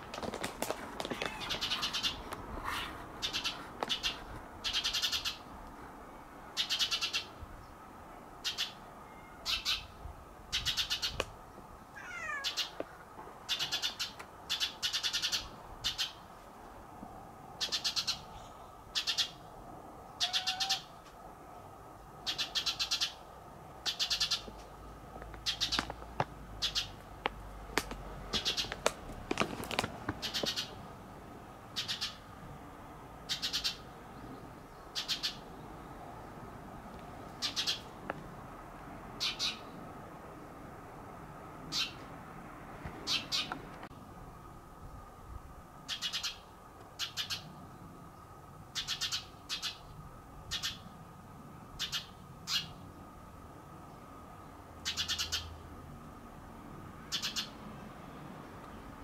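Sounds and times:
bird raspy calls: 1.1s - 5.5s, 6.6s - 7.4s, 8.4s - 9.9s, 10.5s - 11.2s, 12.0s - 12.8s, 13.4s - 16.2s, 17.6s - 19.5s, 20.2s - 21.0s, 22.2s - 23.2s, 23.8s - 24.5s, 25.4s - 25.9s, 26.6s - 27.0s, 28.4s - 28.8s, 30.2s - 30.8s, 31.8s - 32.3s, 33.3s - 35.5s, 37.4s - 37.9s, 39.2s - 39.8s, 41.7s - 42.0s, 43.0s - 43.6s, 45.9s - 47.6s, 48.7s - 49.9s, 50.5s - 50.9s, 51.8s - 52.8s, 54.8s - 55.6s, 57.1s - 57.6s.

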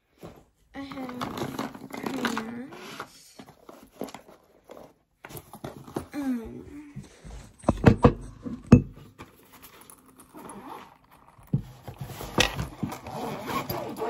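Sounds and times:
pencil case clicking and rustling: 0.9s - 6.1s.

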